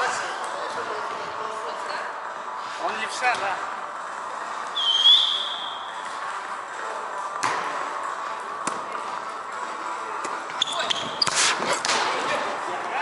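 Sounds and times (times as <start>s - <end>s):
sneaker squeaking on wooden floor: 10.6s - 11.5s.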